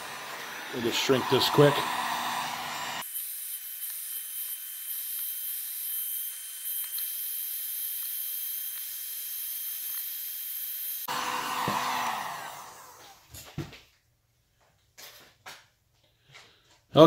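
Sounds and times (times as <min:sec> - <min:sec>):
heat gun hissing: 0:00.0 - 0:13.2.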